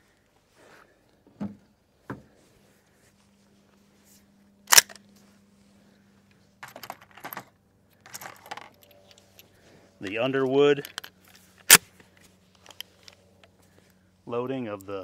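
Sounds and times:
gun metallic clicks and rattles: 4.7 - 5.0, 6.6 - 9.5, 10.8 - 11.8, 12.6 - 13.2.

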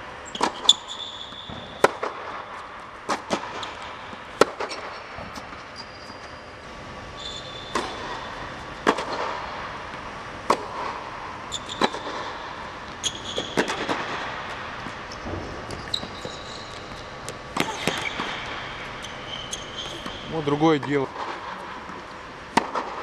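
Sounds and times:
shoe squeaks on court: 0.2 - 2.1, 5.6 - 6.6, 7.2 - 8.0, 11.5 - 12.3, 13.0 - 14.1, 15.1 - 20.5
tennis ball bouncing: 0.3 - 6.4, 7.6 - 20.2, 21.1 - 23.0
tennis ball struck by racket: 1.5 - 5.5, 7.7 - 11.2, 11.8 - 14.9, 21.2 - 23.0.

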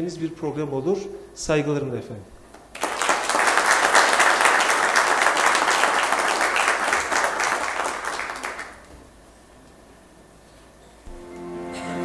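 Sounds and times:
audience applauding: 2.7 - 8.9.

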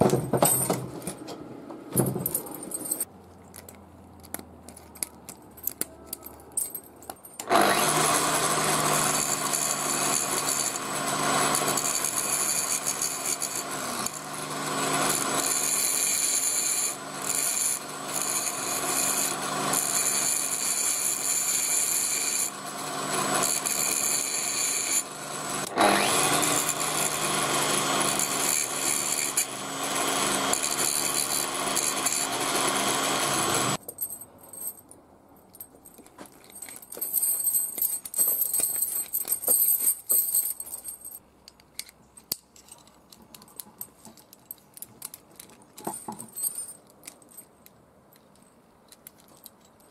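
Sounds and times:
chain links clinking: 2.0 - 7.5, 33.8 - 41.2, 42.2 - 49.9.

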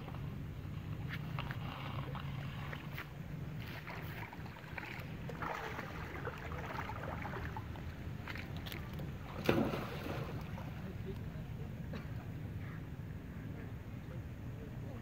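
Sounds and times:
water sloshing and splashing: 0.0 - 11.0.

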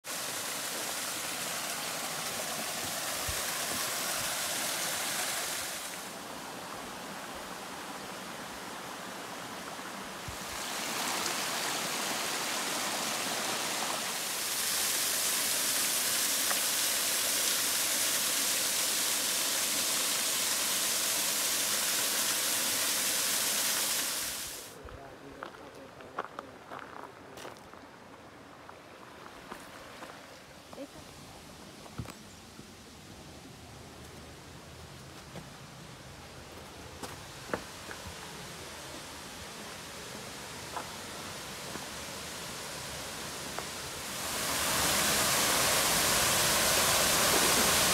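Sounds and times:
waterfall rushing: 0.0 - 24.8, 37.0 - 47.9.

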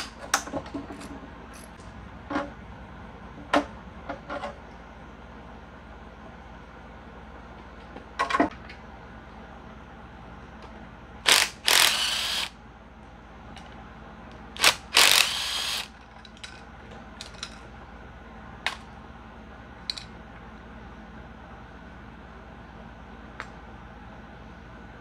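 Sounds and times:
power driver spinning bolts: 11.3 - 12.5, 14.6 - 16.6.

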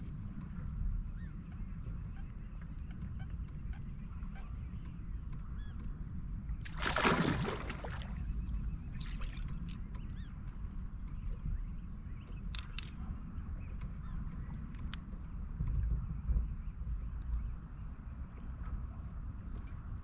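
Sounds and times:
low wind: 0.0 - 20.0
water noise: 6.6 - 9.8
light ticks: 8.4 - 20.0.

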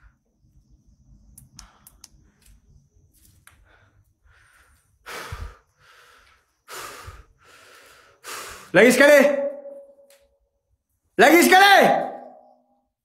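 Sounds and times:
small clicks: 1.2 - 3.7
man breathing heavily: 1.6 - 8.8.

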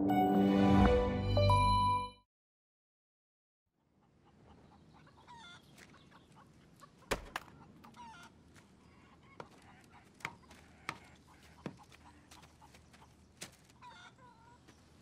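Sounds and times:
chickens clucking: 3.8 - 15.0.

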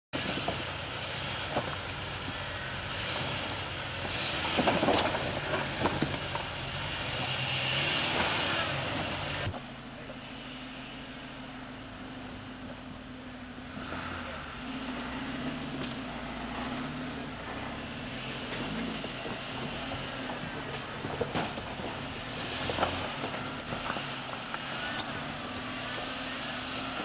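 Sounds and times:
car engine at low revs: 0.2 - 27.0
tyres scraping on rock: 1.2 - 9.6.

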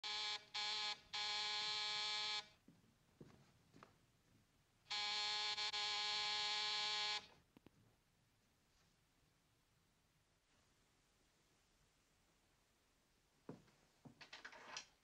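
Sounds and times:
electric door buzzer: 4.9 - 7.2.

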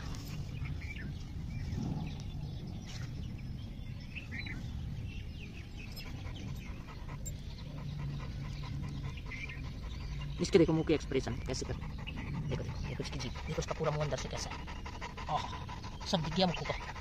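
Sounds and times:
birds chirping: 0.0 - 17.0
dog panting: 5.5 - 17.0.

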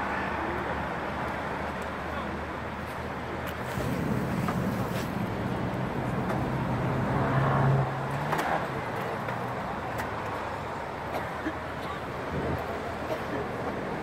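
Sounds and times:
city road traffic: 0.0 - 14.0
vehicle passing engine hum: 3.6 - 10.6.

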